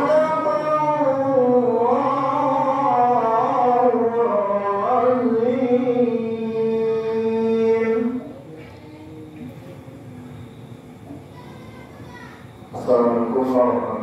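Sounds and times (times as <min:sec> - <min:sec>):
man reciting melodically: 0:00.0 - 0:08.5, 0:12.7 - 0:14.0.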